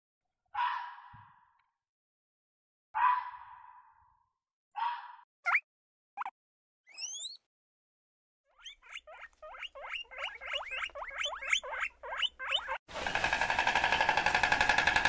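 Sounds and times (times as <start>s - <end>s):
guinea pigs squeaking: 8.5s - 12.9s.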